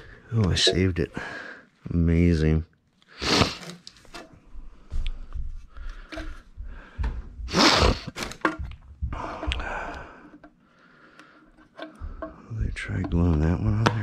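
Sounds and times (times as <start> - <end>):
plastic parts knocking and clicking: 5.8 - 10.6, 11.2 - 14.0.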